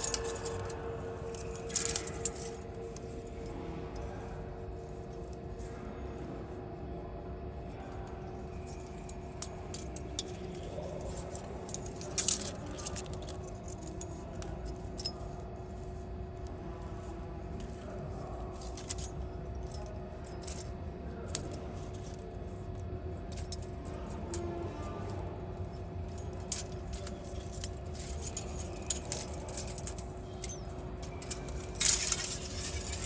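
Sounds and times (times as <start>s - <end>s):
metal blades clinking: 0.0s - 3.2s, 9.7s - 13.4s, 26.4s - 33.0s
faint steady hum: 0.0s - 33.0s.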